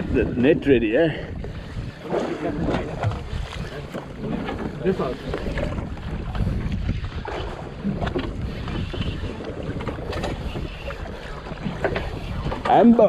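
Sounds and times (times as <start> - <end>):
water washing against boat: 0.0 - 13.0
wind buffeting microphone: 0.0 - 13.0
fishing reel cranking: 4.9 - 13.0.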